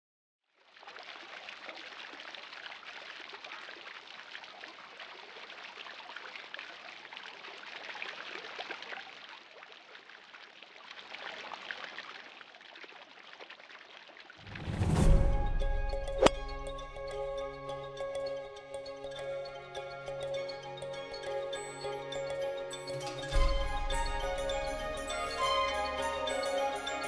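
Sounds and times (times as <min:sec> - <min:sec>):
running water trickling: 0:00.5 - 0:27.0
music: 0:14.5 - 0:27.0.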